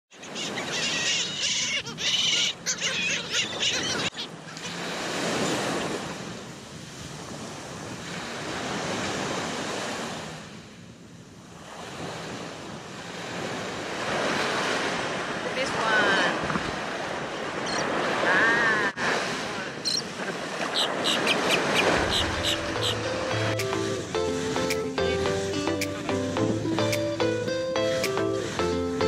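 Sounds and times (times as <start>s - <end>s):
surf breaking on sandy beach: 11.6s - 27.0s.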